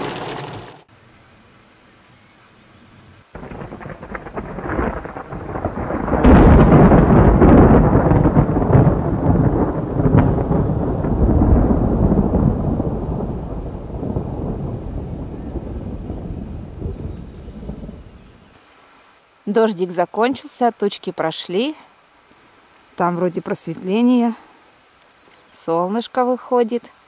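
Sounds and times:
rain hiss: 0.0s - 27.0s
rolling thunder: 3.3s - 18.5s.

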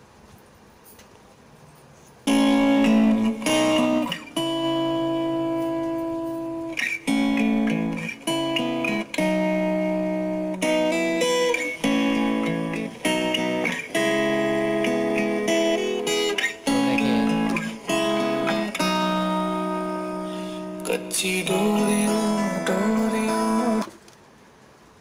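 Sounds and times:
plucked guitar music from speaker: 2.3s - 23.9s.

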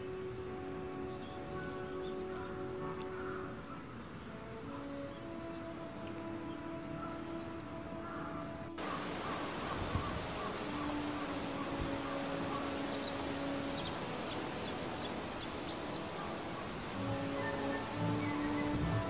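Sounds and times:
outdoor background noise: 0.0s - 19.0s
bird chirping: 8.8s - 19.0s.

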